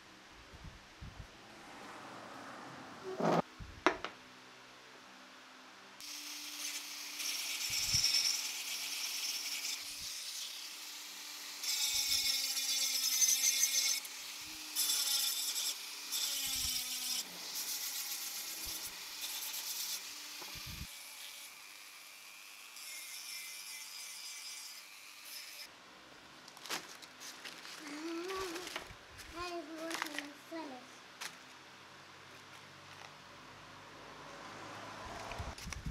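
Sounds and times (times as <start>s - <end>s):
rotary tool motor whine: 6.0s - 22.0s.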